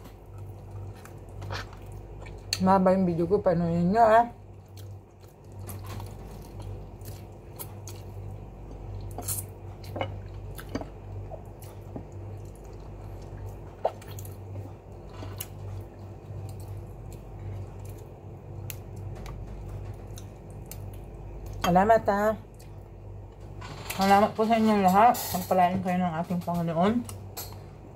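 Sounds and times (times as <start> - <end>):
steady low hum: 0.0 - 27.9
person chewing and sucking food: 4.6 - 19.1.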